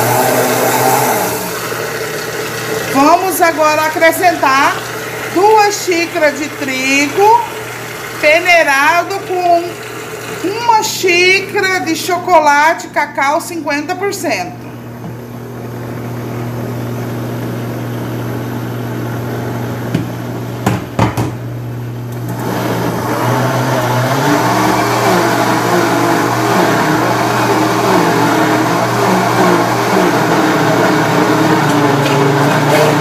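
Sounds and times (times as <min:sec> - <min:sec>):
blender motor running: 0:00.0 - 0:11.9, 0:22.0 - 0:33.0
sharp knocks: 0:20.0 - 0:21.4.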